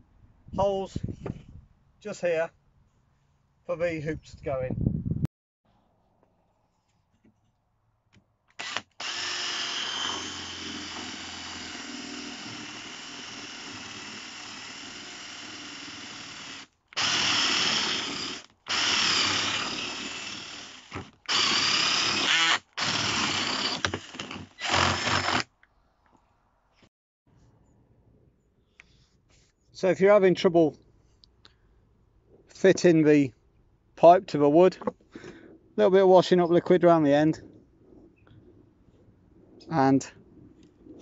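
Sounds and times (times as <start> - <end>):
cordless drill boring into wood: 8.5 - 25.5.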